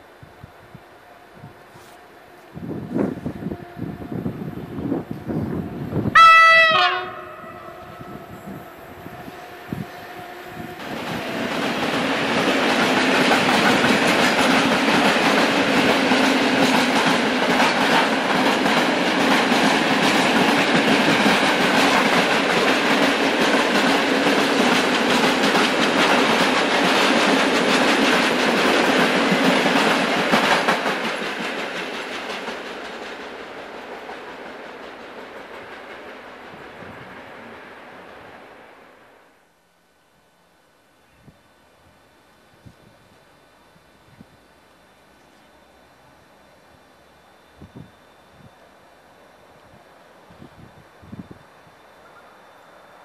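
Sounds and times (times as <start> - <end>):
train wheels clattering over rail joints: 10.8 - 36.8.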